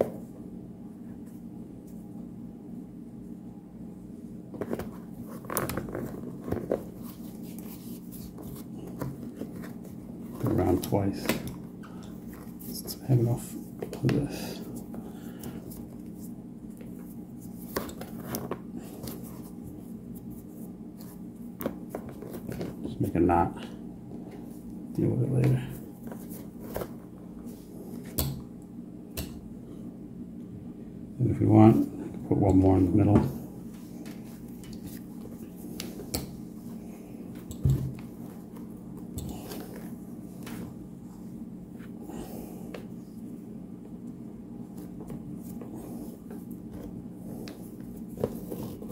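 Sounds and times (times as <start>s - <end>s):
steady low hum: 0.0s - 48.9s
shoelace rubbing and handling: 4.5s - 11.2s, 12.2s - 23.1s, 25.5s - 28.1s, 44.6s - 48.9s.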